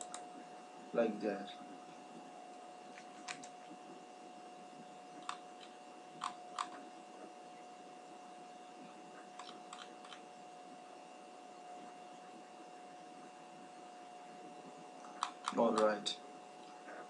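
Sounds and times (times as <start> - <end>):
computer mouse clicks: 0.0 - 0.2, 2.9 - 3.6, 5.2 - 6.8, 9.3 - 10.2, 15.0 - 16.0
faint electrical hum: 0.0 - 17.0.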